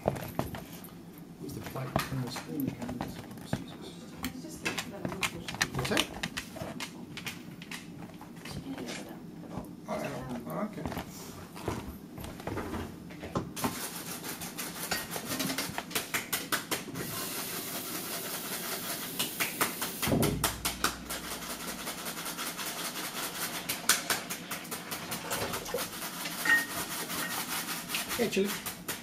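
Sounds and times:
shoes shuffling on laminate floor: 10.2s - 13.3s
low thump: 20.1s - 20.6s.

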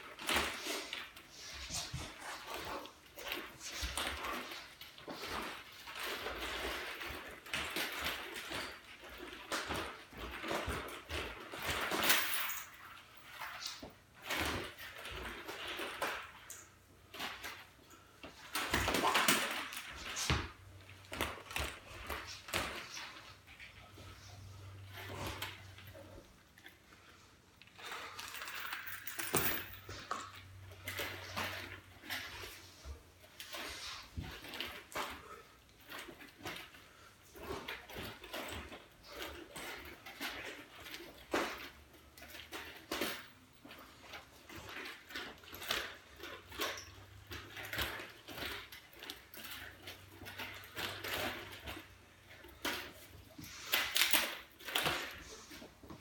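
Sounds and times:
nunchaku swishing: 0.0s - 26.8s, 27.8s - 56.0s
nunchaku clacking: 27.8s - 32.4s.

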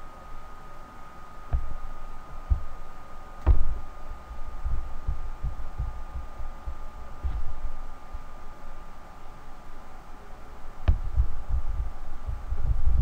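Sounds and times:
muffled low thumps: 1.5s - 2.8s, 3.4s - 3.9s, 4.6s - 7.6s, 10.8s - 13.0s.

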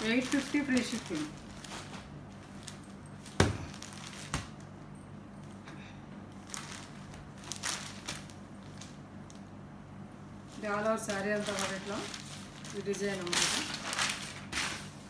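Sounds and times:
cloth rustling: 0.0s - 4.3s, 10.5s - 15.0s.

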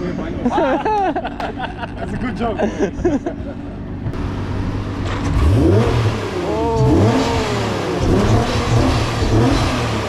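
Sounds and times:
car engine revving: 3.2s - 10.0s.

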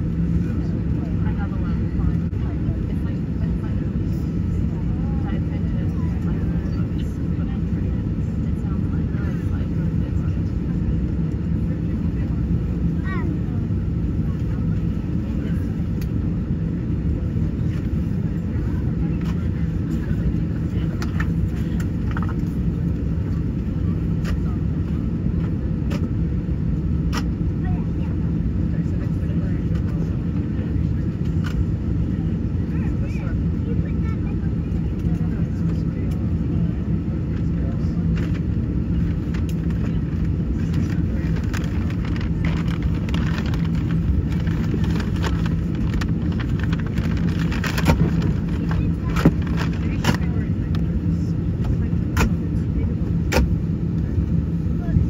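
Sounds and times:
airliner and tug rumble: 0.0s - 55.0s
low hum: 28.0s - 55.0s.

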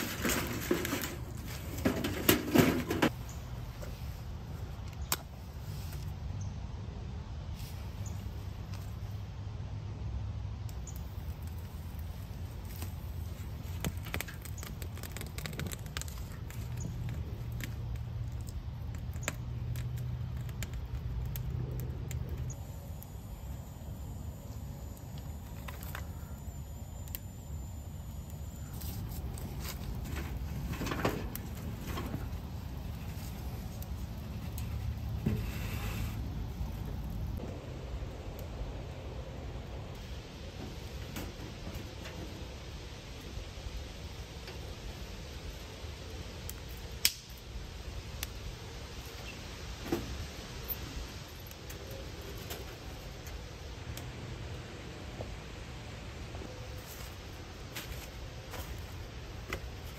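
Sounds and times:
sticks scraping against stove: 0.0s - 3.2s, 28.6s - 36.4s
fire crackling and snapping: 10.6s - 41.1s, 41.8s - 54.7s
kindling crackling as it catches: 12.6s - 22.4s.

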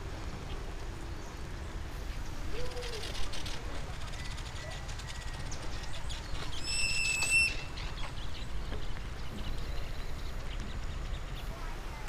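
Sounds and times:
bird whistling long note: 6.5s - 7.8s.

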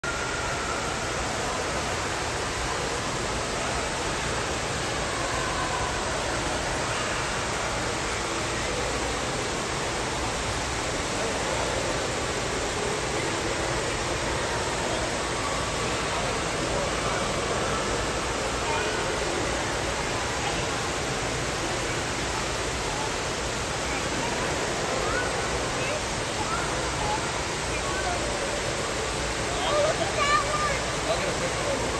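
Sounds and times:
waterfall rushing: 0.0s - 31.9s.

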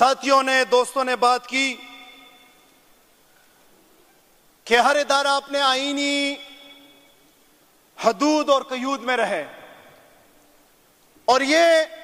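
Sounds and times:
man speaking: 0.0s - 2.6s, 4.7s - 6.9s, 8.0s - 9.8s, 11.3s - 12.0s.

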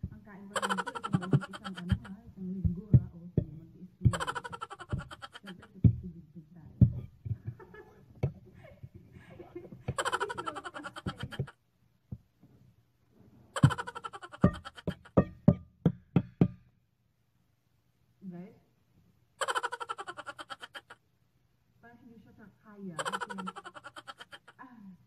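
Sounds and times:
laugh-like sound clip: 0.6s - 2.2s, 4.0s - 5.8s, 7.4s - 11.6s, 13.6s - 15.2s, 19.4s - 21.0s, 23.0s - 24.6s.

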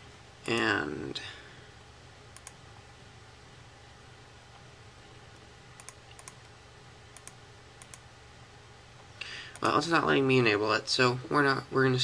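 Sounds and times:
faint steady hum: 0.0s - 12.0s
computer mouse clicks: 2.3s - 2.6s, 5.8s - 8.1s.

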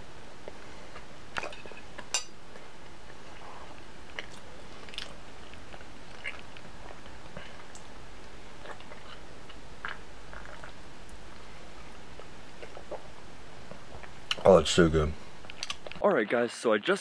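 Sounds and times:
person chewing with wet smacks: 4.0s - 11.2s, 12.1s - 13.1s, 15.4s - 16.0s.

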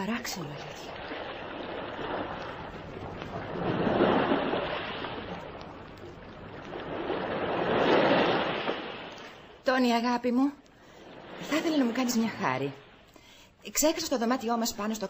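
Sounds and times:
sea waves washing onto beach: 0.0s - 9.7s, 10.8s - 13.0s.

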